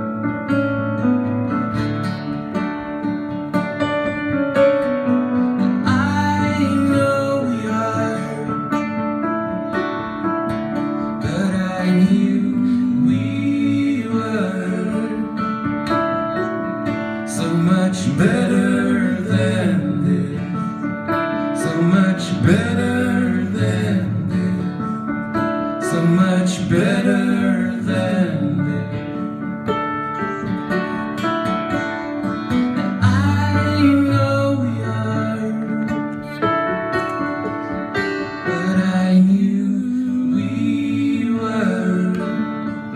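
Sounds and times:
acoustic guitar strumming: 0:00.0 - 0:42.9
keyboard playing piano: 0:00.0 - 0:42.9
man singing: 0:05.8 - 0:09.0, 0:11.0 - 0:15.8, 0:17.2 - 0:29.5, 0:33.0 - 0:36.2, 0:38.3 - 0:42.9.

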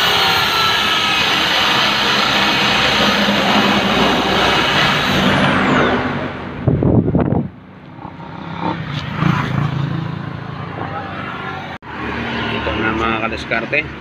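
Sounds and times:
electric drill cutting steel: 0:00.0 - 0:06.0.

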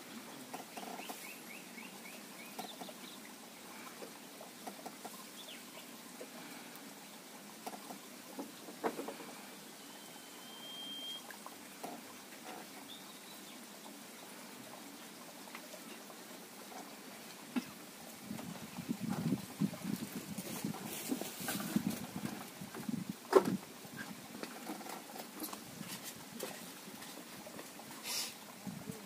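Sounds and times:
bird chirps: 0:09.8 - 0:11.2
bird held whistle: 0:09.9 - 0:11.2.

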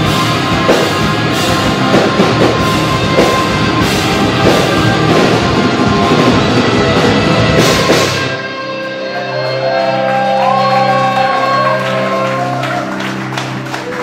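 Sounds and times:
metalcore band playing: 0:00.0 - 0:14.0.

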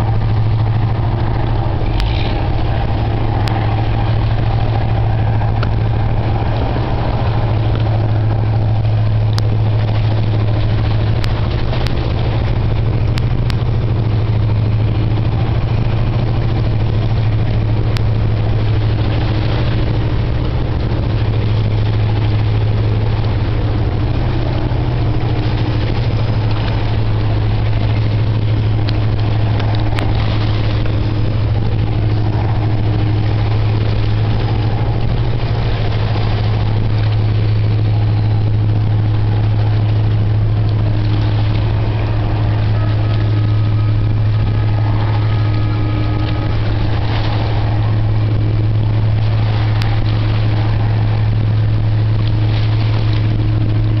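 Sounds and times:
low engine hum: 0:00.0 - 0:54.0.

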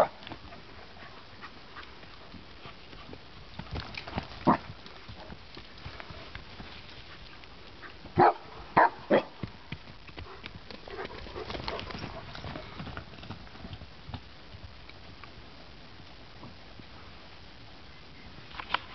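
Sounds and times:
dog barking: 0:08.2 - 0:09.4.

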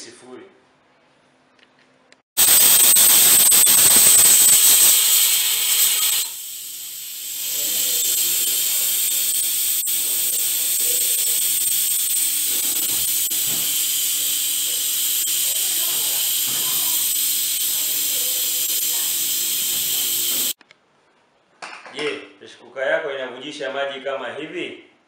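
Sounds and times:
steam hissing from pressure cooker: 0:02.4 - 0:20.6.

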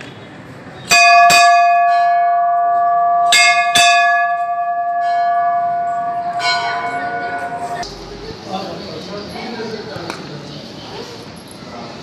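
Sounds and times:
brass bell ringing: 0:00.9 - 0:07.8.

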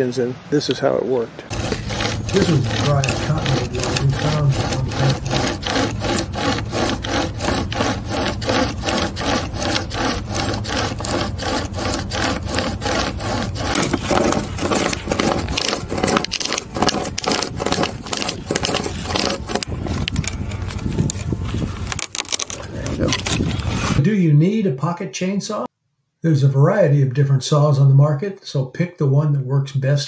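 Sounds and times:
saw chain rasping through log: 0:01.5 - 0:21.3.

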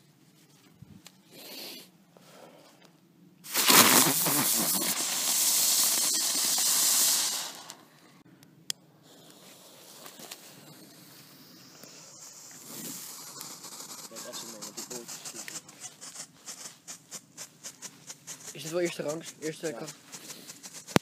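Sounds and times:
firework hissing: 0:03.4 - 0:07.9, 0:09.1 - 0:17.0.

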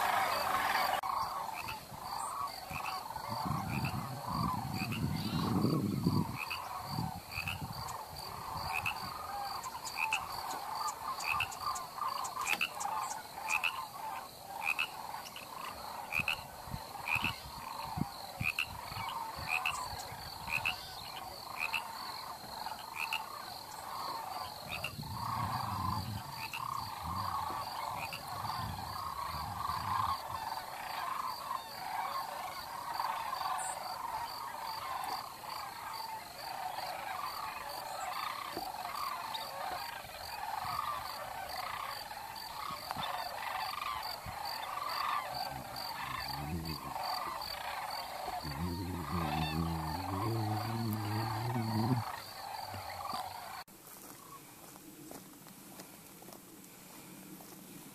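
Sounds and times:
chorus of animal calls: 0:00.0 - 0:54.4.

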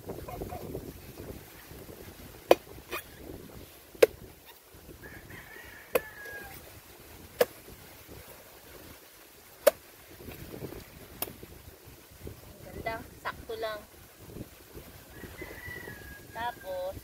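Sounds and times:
machete chopping coconut: 0:02.4 - 0:03.1, 0:03.9 - 0:04.3, 0:07.3 - 0:07.7, 0:09.6 - 0:09.8.

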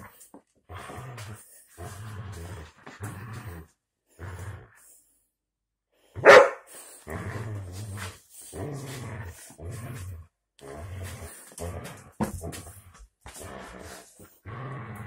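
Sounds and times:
dog growling: 0:00.0 - 0:04.9, 0:07.0 - 0:15.0
dog barking: 0:06.2 - 0:06.7.

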